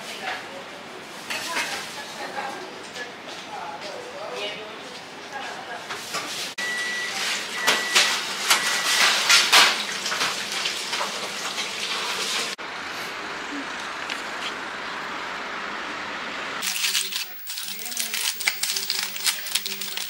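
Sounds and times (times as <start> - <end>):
high electronic beep: 6.6 - 9.2
kitchen clatter and clicks: 7.6 - 12.6, 16.6 - 20.0.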